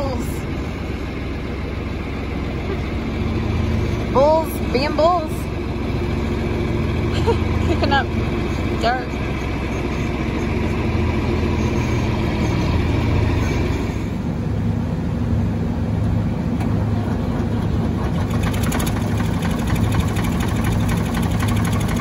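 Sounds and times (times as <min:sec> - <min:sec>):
diesel engine idling: 0:00.0 - 0:22.0.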